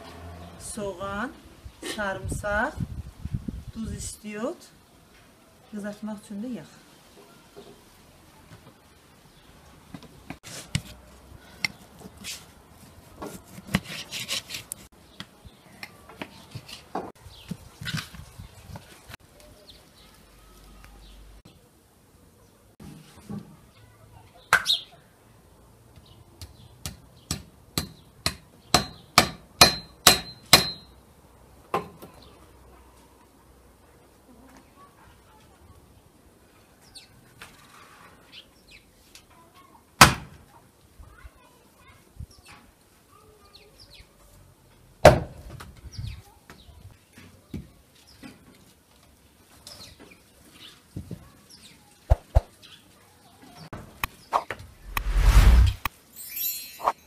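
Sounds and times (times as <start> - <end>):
axe chopping firewood: 26.8 - 30.9, 40.0 - 40.3, 45.0 - 45.3.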